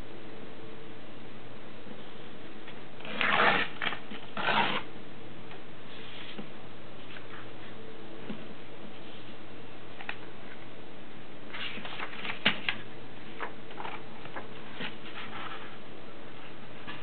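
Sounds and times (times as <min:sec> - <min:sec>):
paper rustling and crackling: 0:11.5 - 0:15.8.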